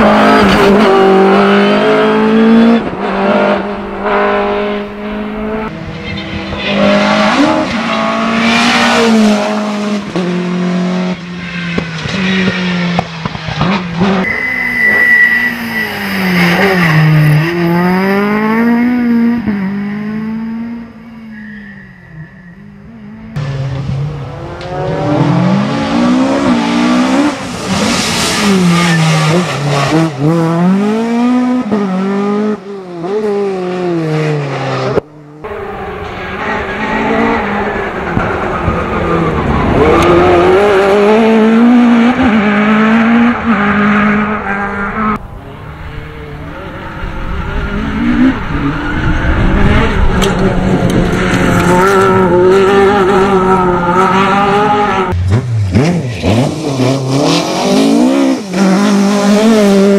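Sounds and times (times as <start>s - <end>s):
rally car engine revving: 0.0s - 21.1s, 22.7s - 59.9s
high squeal: 14.2s - 17.9s, 20.9s - 23.3s.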